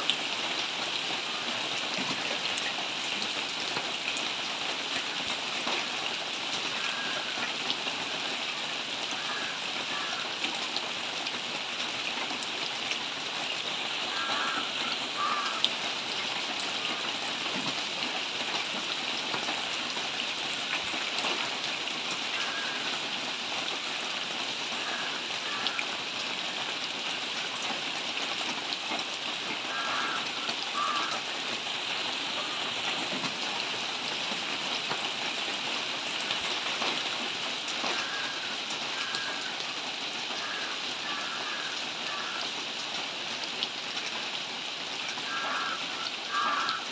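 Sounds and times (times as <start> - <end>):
steady rainfall: 0.0 - 46.9.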